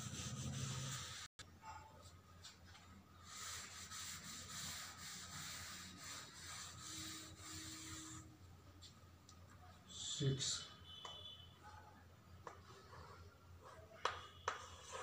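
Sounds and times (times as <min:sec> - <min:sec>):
cloth wiping a chalkboard: 0:00.0 - 0:01.3, 0:02.4 - 0:08.4, 0:12.5 - 0:15.0.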